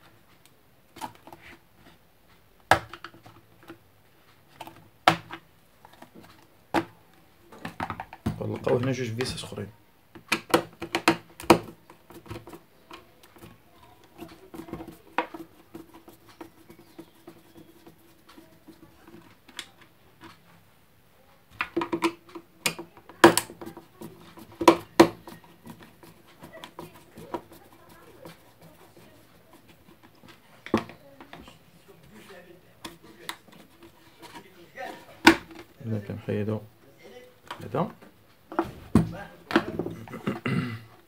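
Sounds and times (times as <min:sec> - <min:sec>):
plastic shell tapping and knocking: 0:07.5 - 0:09.4, 0:10.2 - 0:20.3, 0:21.6 - 0:31.4, 0:35.2 - 0:35.7.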